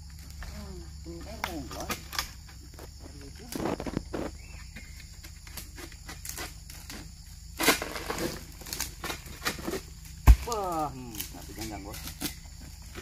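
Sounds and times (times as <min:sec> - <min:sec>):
sickle rustling and clicking: 0:00.0 - 0:13.0
sickle rasping through stalks: 0:05.3 - 0:13.0.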